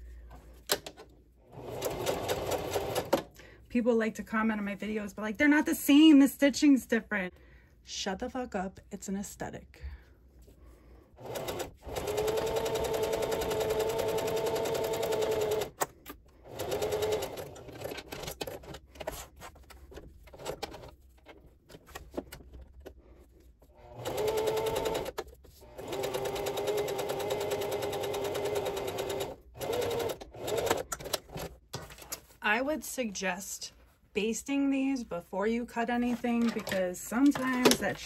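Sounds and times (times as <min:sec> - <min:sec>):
sewing machine stitching: 0:01.5 - 0:03.2, 0:11.2 - 0:15.8, 0:16.4 - 0:18.8, 0:23.8 - 0:31.5.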